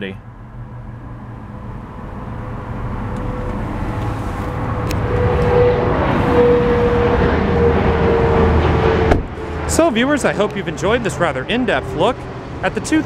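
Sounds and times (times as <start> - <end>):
engine drone: 0.0 - 13.0
car door opening: 9.0 - 9.4.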